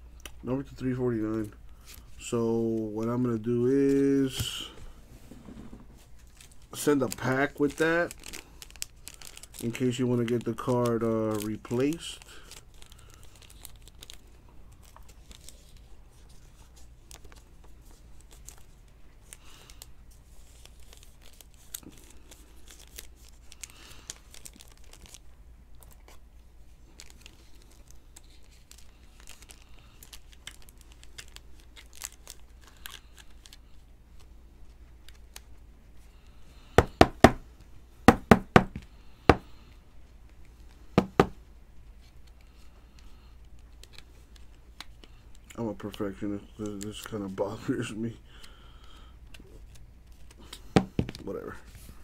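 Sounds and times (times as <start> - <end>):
foil pack crinkling: 6.1 - 15.9, 16.8 - 34.3.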